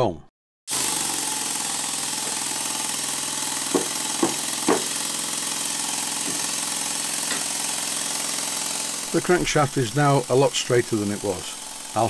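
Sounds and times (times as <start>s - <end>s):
model steam engine running: 0.7s - 12.0s
sharp knocks on crankshaft: 3.7s - 5.1s, 6.2s - 6.6s, 7.2s - 7.6s.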